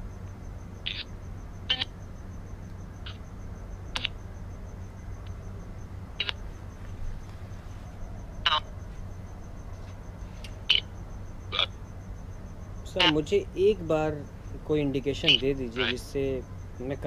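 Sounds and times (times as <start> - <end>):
low electrical hum: 0.0 - 17.0
sharp clicks or chirps: 3.9 - 4.2, 6.2 - 6.4.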